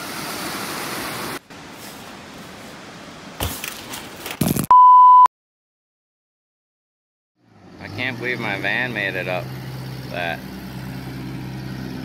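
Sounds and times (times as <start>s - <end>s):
electronic beep: 4.7s - 5.3s.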